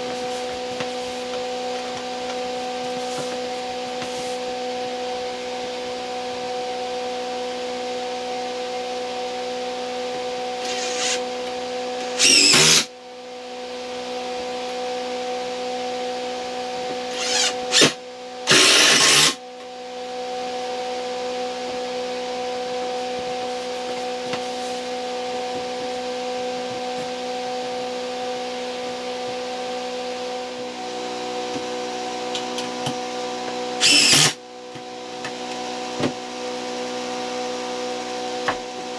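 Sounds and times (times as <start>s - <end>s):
steady hum: 0.0s - 6.7s
cordless drill driving screws: 10.6s - 11.2s, 12.2s - 12.9s, 17.1s - 19.4s, 33.8s - 34.4s.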